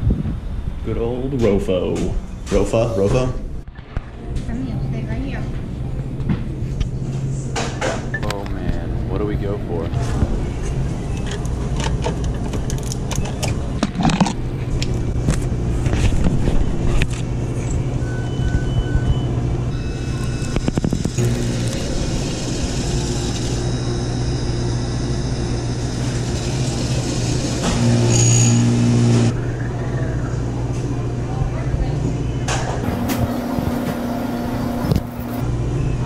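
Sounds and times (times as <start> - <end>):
short beeps: 18.0 - 20.7
blender motor running: 19.9 - 29.3, 32.8 - 35.4.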